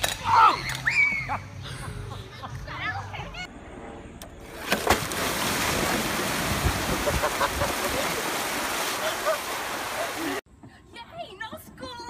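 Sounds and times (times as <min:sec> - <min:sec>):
pool wall bursting with splash: 0:04.5 - 0:10.4
water gushing out: 0:04.5 - 0:10.4.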